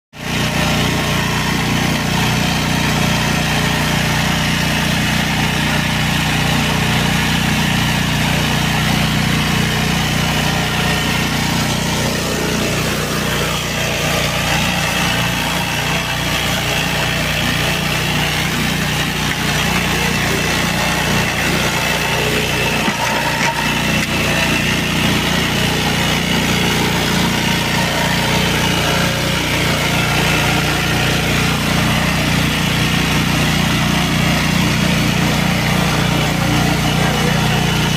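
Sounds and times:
walk-behind tractor engine running: 0:00.1 - 0:37.9.

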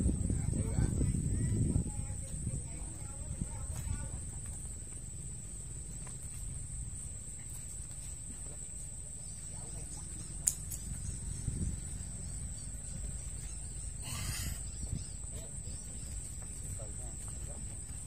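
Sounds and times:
low outdoor rumble: 0:00.0 - 0:18.0
high-pitched insect drone: 0:09.2 - 0:17.2
sharp click: 0:10.4 - 0:10.9.

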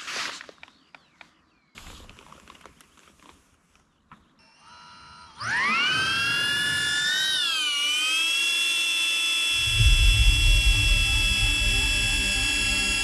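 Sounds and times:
drone propellers whining: 0:04.4 - 0:13.0
low rumbling: 0:09.6 - 0:13.0.

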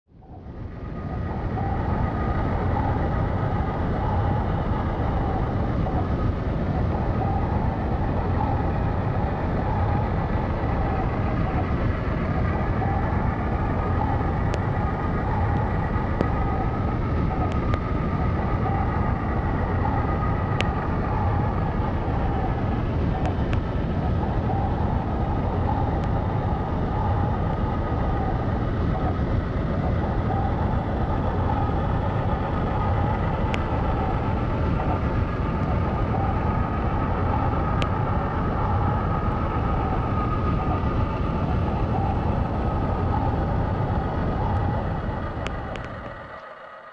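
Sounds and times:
faint clicks: 0:17.3 - 0:17.9, 0:25.7 - 0:26.3, 0:43.0 - 0:46.5.

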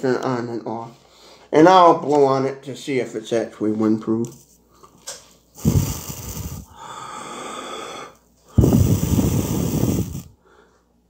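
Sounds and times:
person blowing into microphone: 0:05.6 - 0:07.8, 0:08.5 - 0:10.4.

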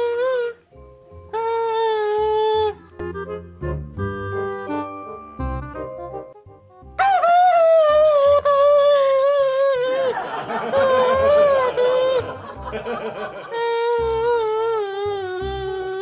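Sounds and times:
balloon whistle wavering tone: 0:00.0 - 0:03.4, 0:07.0 - 0:12.6, 0:13.2 - 0:16.0
background music with a beat: 0:02.9 - 0:07.0.

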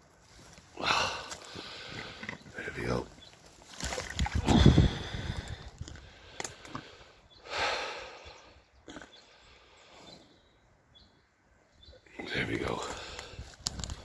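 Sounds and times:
heavy breath blown out: 0:00.8 - 0:02.2, 0:04.4 - 0:08.5.

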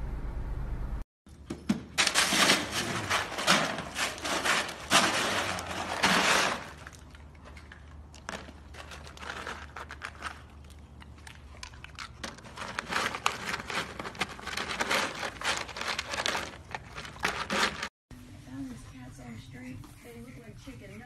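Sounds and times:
ice cubes clattering and crunching: 0:02.0 - 0:17.9.

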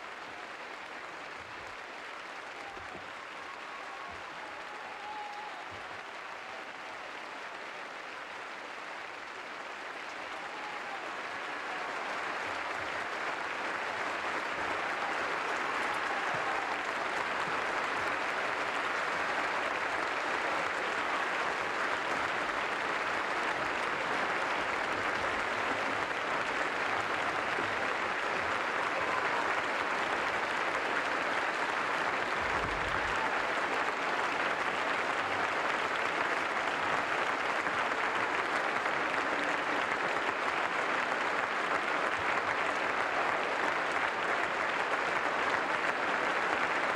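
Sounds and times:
audience applauding: 0:00.0 - 0:46.9.

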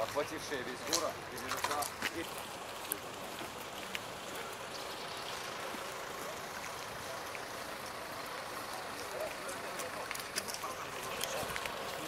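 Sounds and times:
street ambience rushing: 0:00.0 - 0:12.0.

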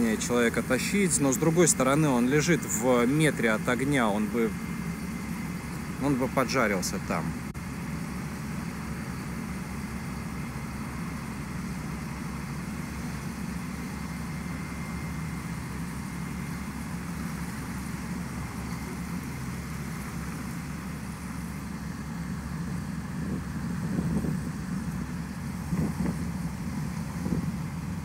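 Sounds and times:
vehicle engines idling: 0:00.0 - 0:28.0.

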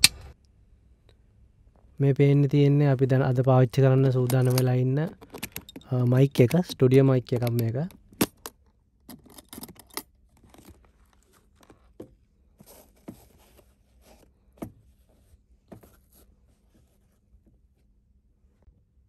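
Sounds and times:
microphone case latches clicking: 0:04.2 - 0:10.8
cloth pouch rustling against foam: 0:10.5 - 0:17.3.

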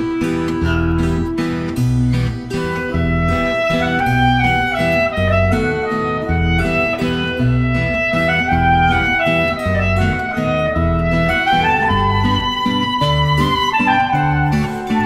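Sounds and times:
acoustic guitar: 0:00.0 - 0:15.0
bass: 0:00.0 - 0:15.0
sliding melody line: 0:00.0 - 0:15.0.

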